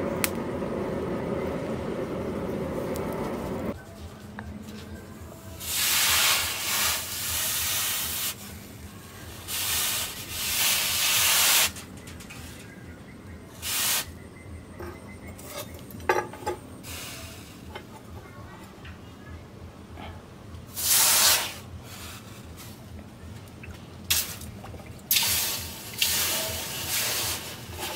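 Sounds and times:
hot blade hissing in water: 5.6 - 8.4, 13.6 - 14.1, 20.8 - 22.2, 25.1 - 27.9.

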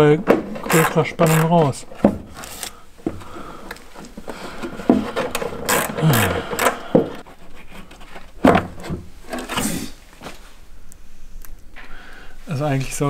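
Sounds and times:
knocks clicks and scrapes of tool: 0.2 - 2.7, 3.6 - 9.6
person humming low: 5.8 - 7.2.

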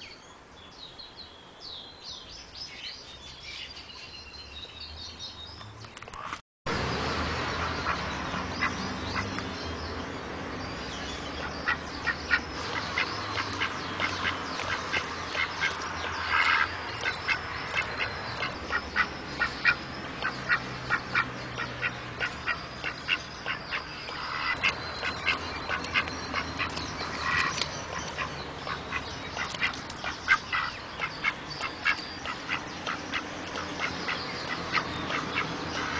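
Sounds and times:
mallard drake calling: 11.4 - 35.9.

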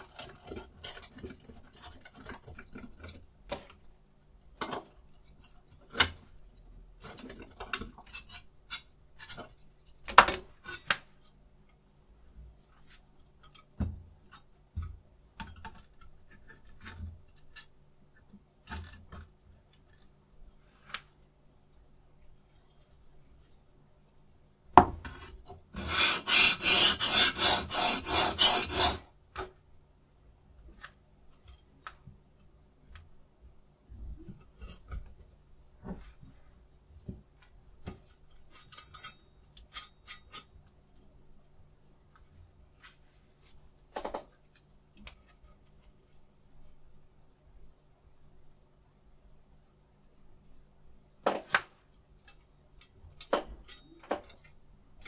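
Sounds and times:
metal parts clicking and tapping: 0.0 - 3.9, 37.4 - 40.6
rapid knife scraping: 25.8 - 29.1.

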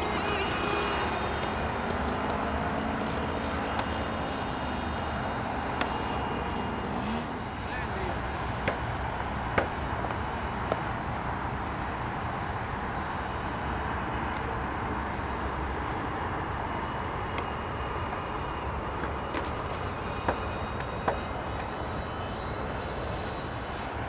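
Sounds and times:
ducted-fan model jet rushing: 0.0 - 12.8, 15.7 - 24.0.

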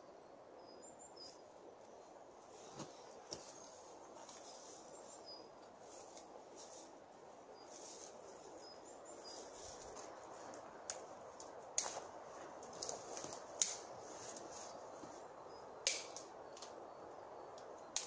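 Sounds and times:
steady outdoor hiss: 0.0 - 18.0
dry twigs snapping: 10.5 - 14.5, 15.8 - 16.8, 17.5 - 18.0.

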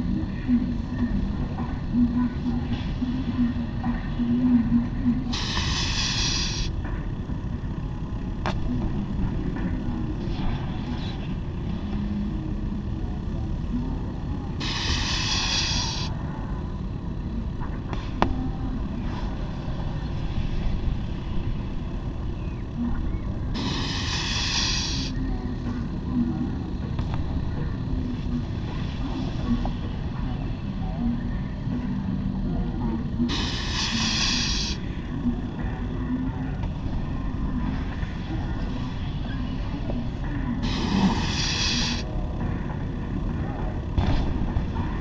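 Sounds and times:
steady low rumble: 0.0 - 45.0
hiss bursts: 5.3 - 6.8, 14.6 - 16.1, 23.6 - 25.2, 33.3 - 35.0, 40.6 - 42.1.

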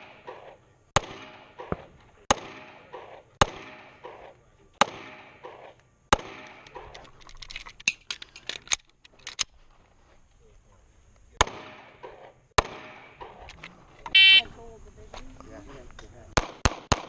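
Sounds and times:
pistol shots with ringing echo: 0.0 - 6.8, 11.4 - 13.4, 16.4 - 17.0
pistol handling clicks and knocks: 6.2 - 9.5.

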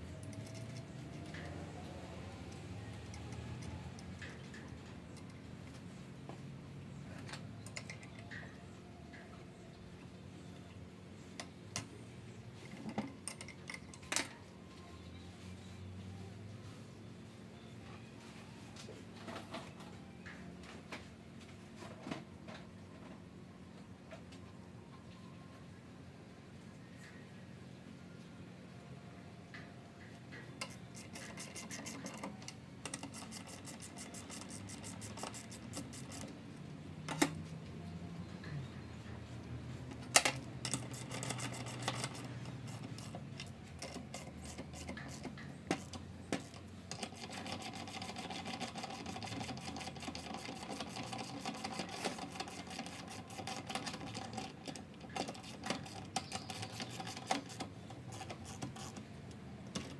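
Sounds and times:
hand tools clicking: 40.1 - 59.0.

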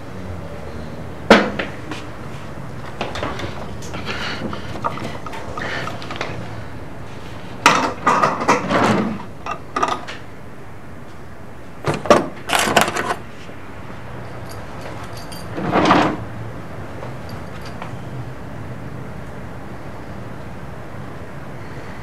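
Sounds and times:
objects clattering in wooden drawer: 15.4 - 16.2.

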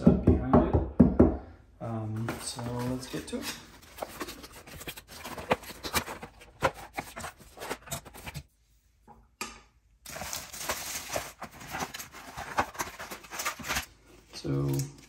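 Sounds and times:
cardboard packaging rustling: 2.1 - 8.5, 10.0 - 14.8.

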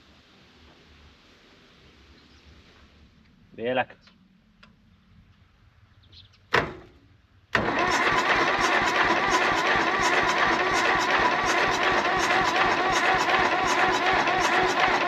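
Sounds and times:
diesel engine cranking: 7.5 - 15.0.

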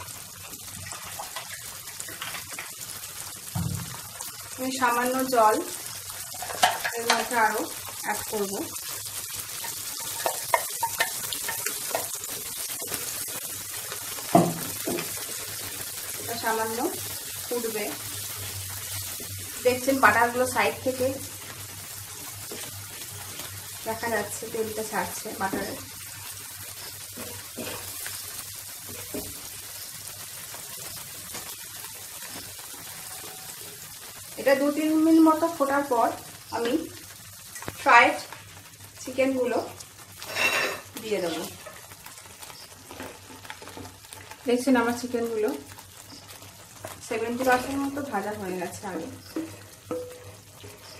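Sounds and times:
gravy sizzling in a frying pan: 0.0 - 50.9
wooden spatula scraping: 40.2 - 40.9
wooden spatula scraping a pan: 40.2 - 42.0.

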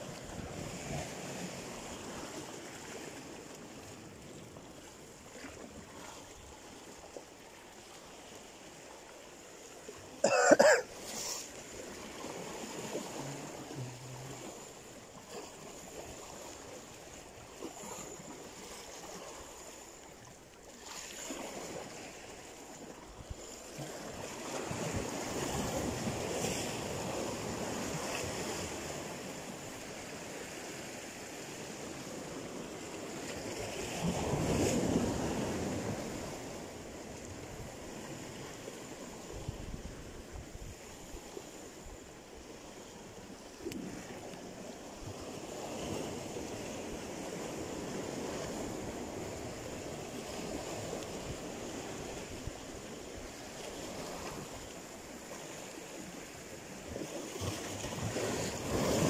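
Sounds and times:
brief loud scrape: 11.0 - 11.5
waves washing against rocks: 43.7 - 59.0.

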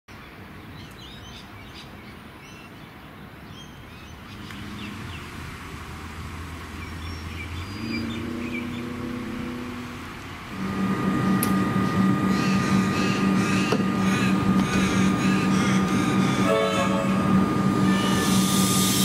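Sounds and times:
birds chirping: 0.1 - 5.4, 6.6 - 9.6, 11.6 - 17.6
low mechanical hum: 8.5 - 19.0.

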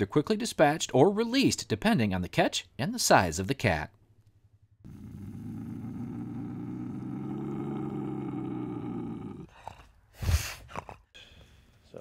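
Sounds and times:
bobcat growling: 4.8 - 9.9.

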